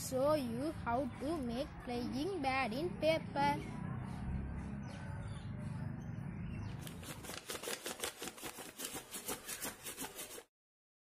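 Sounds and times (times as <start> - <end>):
paper flapping: 6.8 - 10.5.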